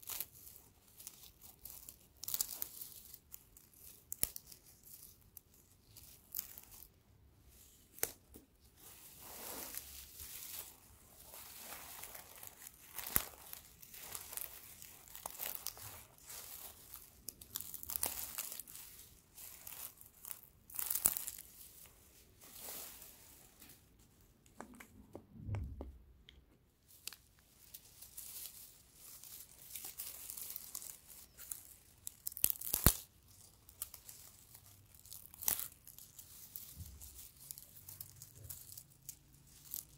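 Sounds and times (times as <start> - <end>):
straw rustling and tearing: 0.0 - 23.8, 26.9 - 39.9
straw stalks snapping: 1.0 - 3.2, 3.8 - 5.2, 7.9 - 8.4, 12.0 - 18.7, 19.4 - 21.5, 29.3 - 34.3, 35.0 - 36.0.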